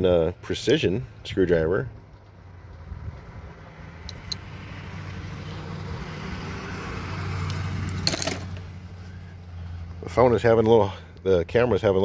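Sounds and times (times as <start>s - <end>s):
car passing by: 3.0s - 10.3s.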